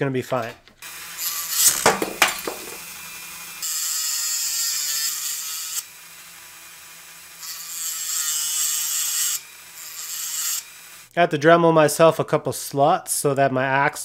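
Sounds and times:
rotary tool motor humming: 0.8 - 1.9, 2.5 - 11.1
cutting wheel grinding: 0.8 - 11.1.

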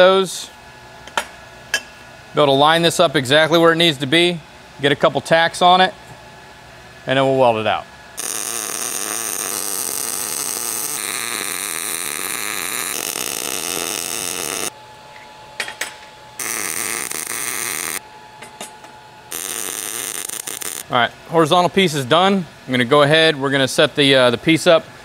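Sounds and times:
welding arc crackling hiss: 8.2 - 14.7, 16.4 - 18.0, 19.3 - 20.9.

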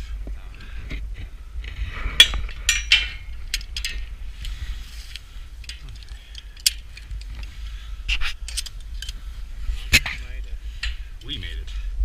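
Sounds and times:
wind rumble on microphone: 0.0 - 12.0
metal climbing hardware clanking: 1.6 - 4.6, 5.6 - 11.4.

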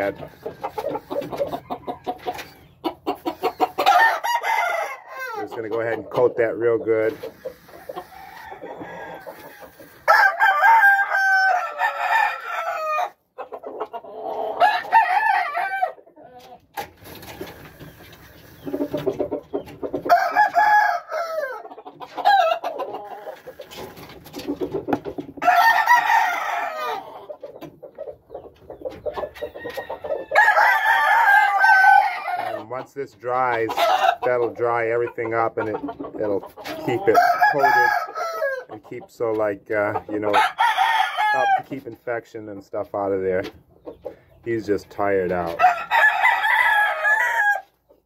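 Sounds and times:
roosters crowing: 0.0 - 5.7, 7.2 - 24.0, 25.1 - 27.6, 28.8 - 35.6, 36.5 - 38.8, 40.2 - 41.8, 45.3 - 48.0.

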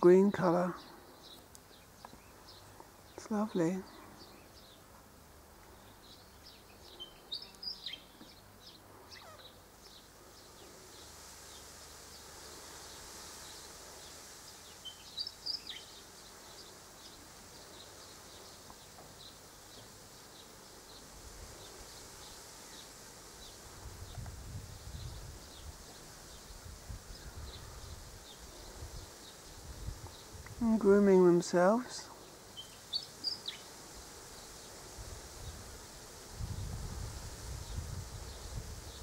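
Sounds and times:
soft high hiss: 0.0 - 39.0
songbirds chirping: 0.0 - 39.0
faint ticks: 1.3 - 2.2, 18.6 - 20.0.

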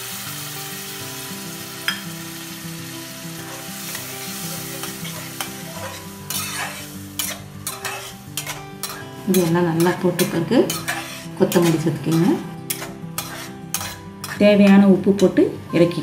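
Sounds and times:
food sizzling in a pan: 0.0 - 14.9
metal spatula scraping a pan: 3.4 - 14.8.

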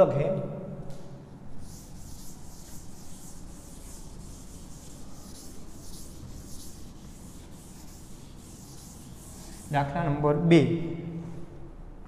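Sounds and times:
duster wiping chalkboard: 1.6 - 10.2.

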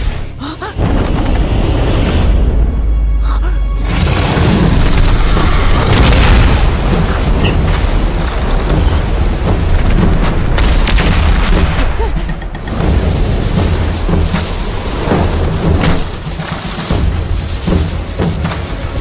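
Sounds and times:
explosion with rumbling booms: 4.0 - 12.0.

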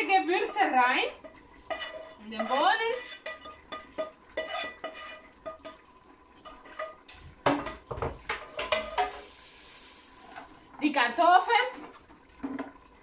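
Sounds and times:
metal spoon scraping frying pan: 0.4 - 9.5
cookware knocks: 7.4 - 9.2.

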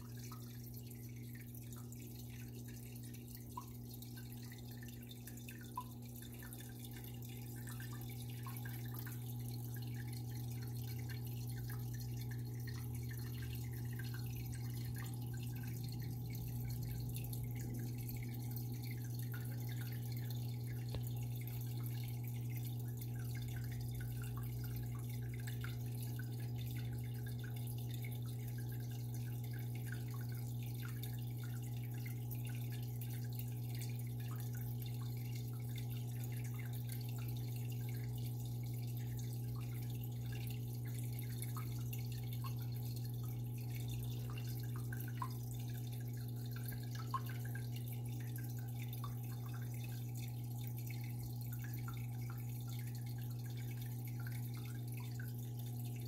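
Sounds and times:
aquarium pump humming: 0.0 - 56.0
water trickling and dripping: 0.0 - 56.0.

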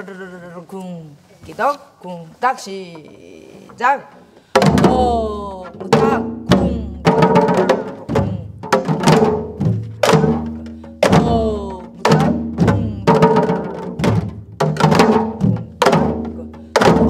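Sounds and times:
hourglass drum playing: 4.6 - 14.1.

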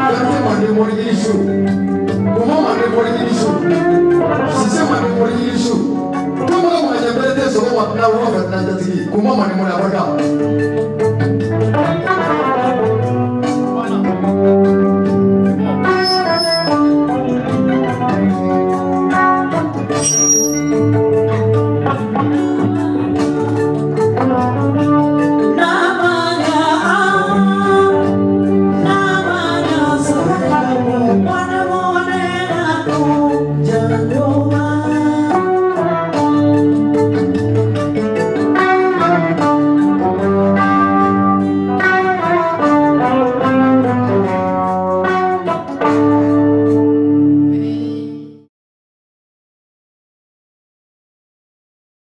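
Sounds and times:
instrumental accompaniment: 1.4 - 6.8, 10.2 - 33.8, 34.4 - 47.9
woman singing into a microphone: 25.4 - 35.6.

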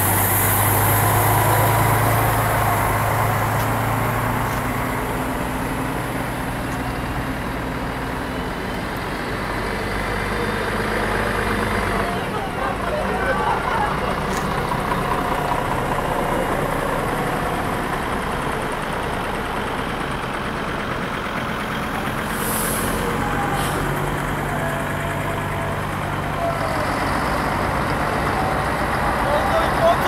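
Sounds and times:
bus diesel engines droning: 0.0 - 30.0
high air hiss: 22.3 - 23.0.

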